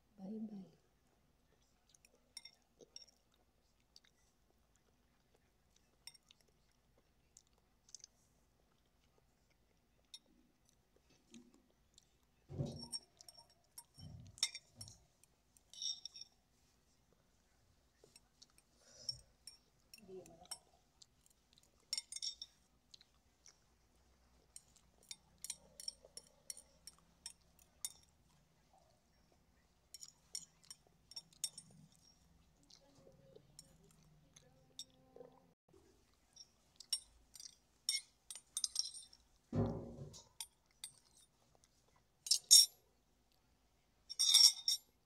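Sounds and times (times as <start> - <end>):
teeth clinking against glass bowl: 2.0 - 3.3, 12.6 - 15.0, 15.6 - 16.4, 21.5 - 23.6, 24.5 - 28.2, 29.9 - 32.8, 36.3 - 41.3, 44.1 - 45.0.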